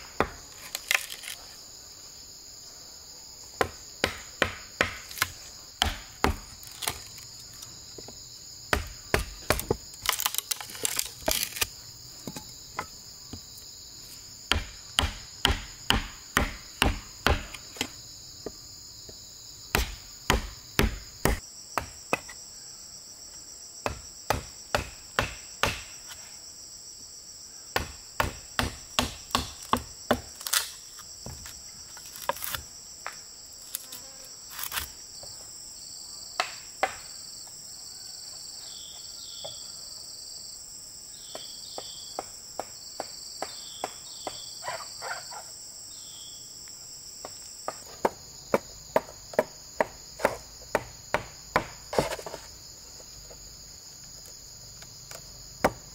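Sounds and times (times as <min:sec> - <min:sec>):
chopping or hammering blows: 0:00.0 - 0:01.0, 0:03.6 - 0:07.1, 0:08.7 - 0:10.2, 0:14.5 - 0:17.9, 0:19.7 - 0:22.3, 0:23.8 - 0:26.0, 0:27.8 - 0:30.4, 0:36.4 - 0:37.1, 0:47.7 - 0:52.4, 0:55.6 - 0:55.9
insects droning: 0:00.0 - 0:55.9
short insect chirps: 0:43.5 - 0:47.6.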